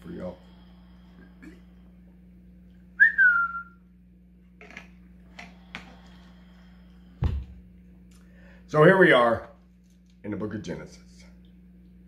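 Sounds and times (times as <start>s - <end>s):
short descending whistle: 3.0s - 3.8s.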